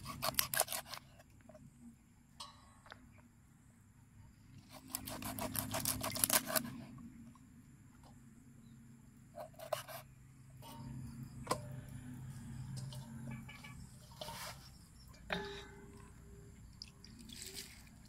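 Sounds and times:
knife cutting on wooden board: 0:04.8 - 0:06.7.

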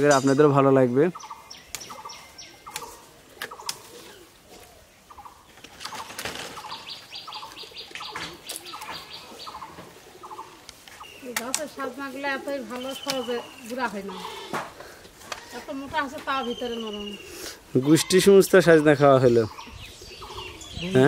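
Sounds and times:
branches snapping and rustling: 0:01.2 - 0:16.4.

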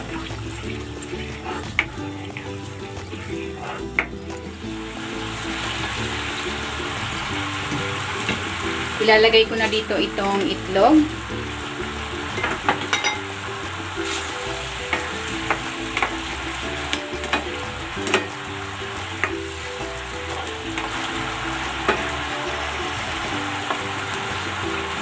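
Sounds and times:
sauce bubbling and sizzling: 0:00.0 - 0:25.0
spatula scraping pan: 0:14.0 - 0:18.4.

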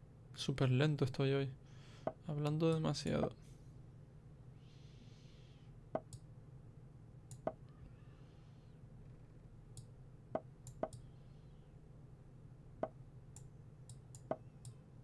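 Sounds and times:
faint low hum: 0:00.0 - 0:15.0
computer mouse clicks: 0:13.4 - 0:14.8.

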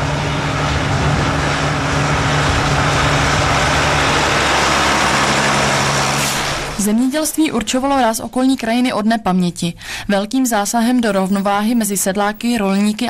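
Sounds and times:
tractor diesel engine running: 0:00.0 - 0:07.2, 0:10.9 - 0:13.0.

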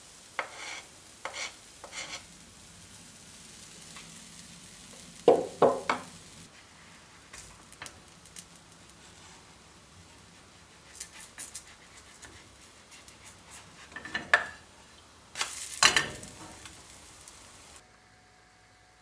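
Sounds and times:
faint frying sizzle: 0:00.0 - 0:18.8
spatula scraping frying pan: 0:00.3 - 0:02.4, 0:09.0 - 0:16.7.

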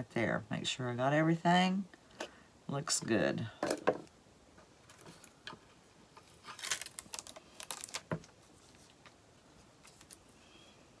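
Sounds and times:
stencil peeling crackle: 0:06.2 - 0:09.1, 0:09.8 - 0:10.3.

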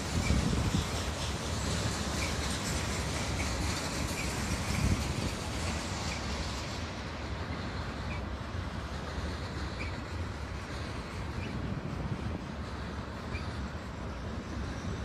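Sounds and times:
train wheels rumbling on rails: 0:00.0 - 0:15.0
faint wheel squeals: 0:09.6 - 0:10.1, 0:13.2 - 0:15.0.

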